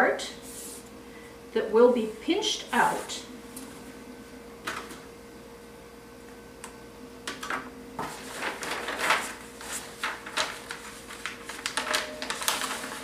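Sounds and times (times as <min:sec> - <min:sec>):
faint steady hum: 0:00.0 - 0:13.0
paper rustling and crinkling: 0:08.0 - 0:13.0.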